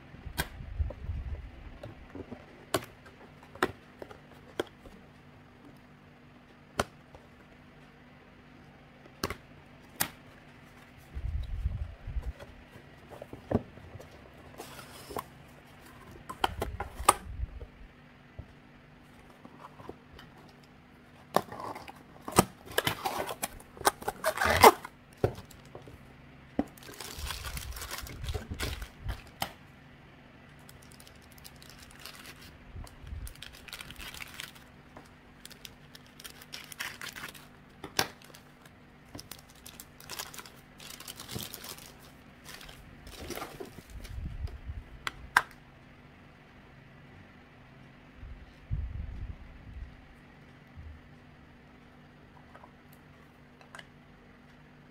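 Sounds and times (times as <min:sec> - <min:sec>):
plastic packaging crinkling and tearing: 0:21.4 - 0:25.7, 0:26.7 - 0:29.4, 0:30.6 - 0:44.2.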